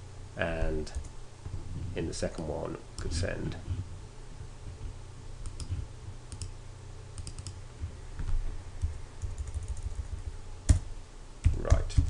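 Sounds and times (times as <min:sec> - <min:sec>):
steady low hum: 0:00.0 - 0:12.0
mouse and keyboard clicks: 0:05.4 - 0:06.5, 0:07.2 - 0:07.6.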